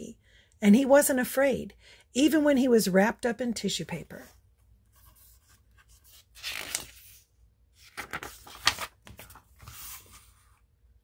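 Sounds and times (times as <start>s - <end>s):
paper page turning: 5.0s - 10.5s.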